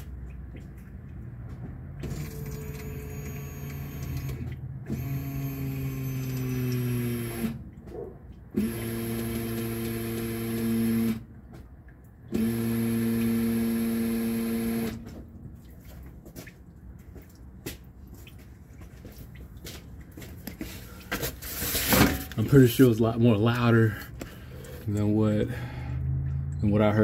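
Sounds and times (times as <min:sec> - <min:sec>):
electric fuel pump humming: 0:02.0 - 0:07.9, 0:08.5 - 0:11.4, 0:12.2 - 0:15.2.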